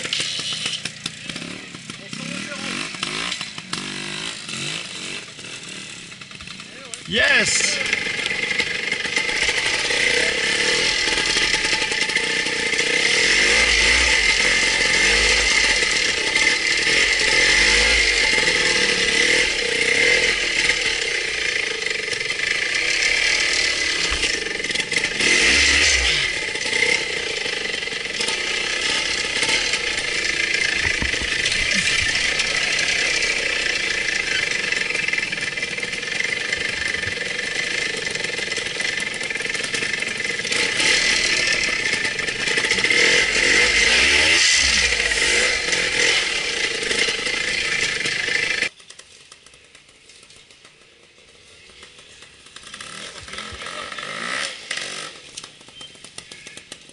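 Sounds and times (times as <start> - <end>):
two-stroke motorcycle engine running: 0.0 - 56.9.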